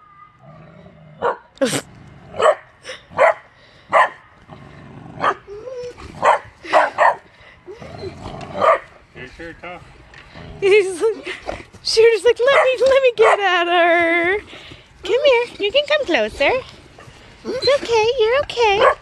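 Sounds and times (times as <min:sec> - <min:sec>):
dog barking: 0:01.2 - 0:01.4, 0:02.4 - 0:02.6, 0:03.2 - 0:04.2, 0:06.2 - 0:07.2, 0:08.6 - 0:08.9, 0:12.5 - 0:13.4, 0:18.8 - 0:19.0.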